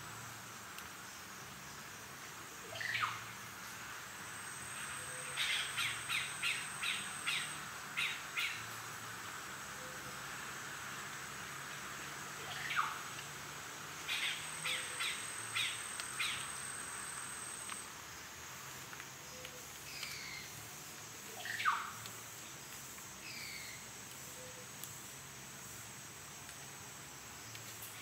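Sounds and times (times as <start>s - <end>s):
birds calling: 14.1s - 16.6s.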